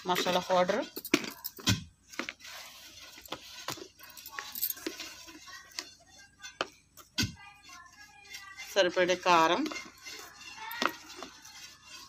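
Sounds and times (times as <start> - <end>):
small metallic clinks: 0.1 - 2.3, 3.0 - 7.2.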